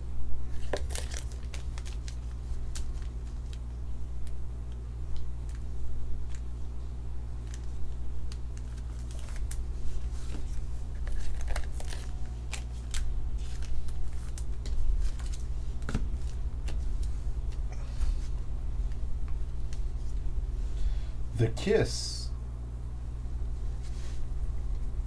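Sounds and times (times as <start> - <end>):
steady low hum: 0.0 - 25.0
cards clicking and rustling: 0.5 - 3.7, 7.4 - 17.6.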